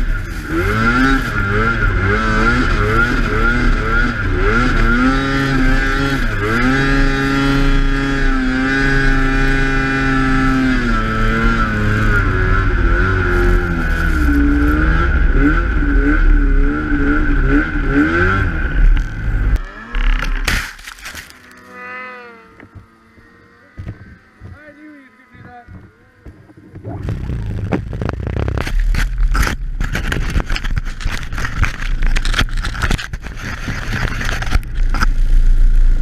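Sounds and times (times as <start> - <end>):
snowmobile engine revving: 0.0 - 36.0.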